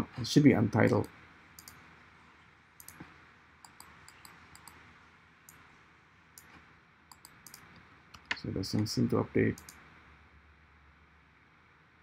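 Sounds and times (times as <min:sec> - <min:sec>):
low room hiss: 0:00.0 - 0:12.0
faint computer mouse clicks: 0:00.8 - 0:01.8, 0:02.8 - 0:04.8, 0:06.4 - 0:08.9, 0:09.6 - 0:09.8.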